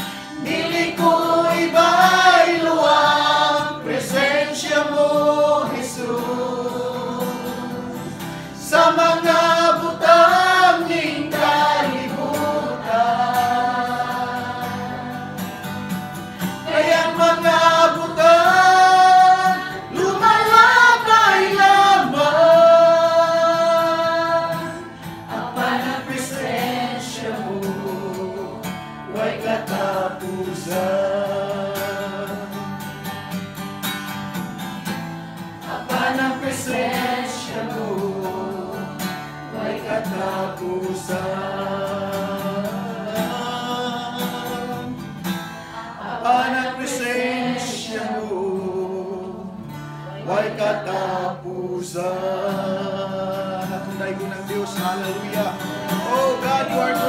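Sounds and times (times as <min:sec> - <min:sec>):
acoustic guitar strumming: 0:00.0 - 0:57.0
man singing: 0:00.4 - 0:14.8, 0:16.7 - 0:24.8, 0:25.6 - 0:32.6, 0:39.8 - 0:45.1, 0:46.2 - 0:49.6, 0:50.2 - 0:57.0.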